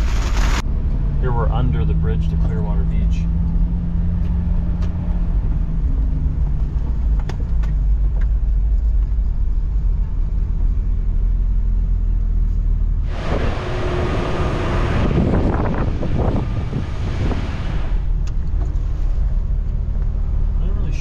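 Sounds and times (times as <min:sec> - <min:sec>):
car engine and road rumble: 0:00.0 - 0:21.0
wind buffeting microphone: 0:13.1 - 0:18.6.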